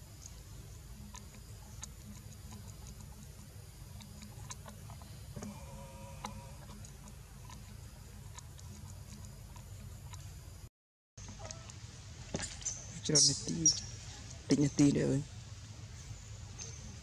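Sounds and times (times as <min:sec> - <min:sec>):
sharp clicks and ticks: 0:01.0 - 0:05.5, 0:06.2 - 0:10.3.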